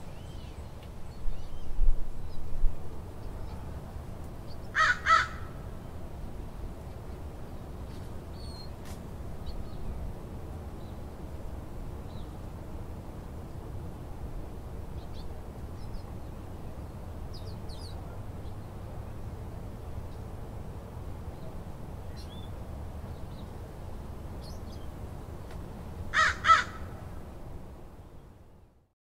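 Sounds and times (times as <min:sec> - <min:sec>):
low hum of town: 0:00.0 - 0:29.0
loud bird calls: 0:04.6 - 0:05.6, 0:26.1 - 0:27.0.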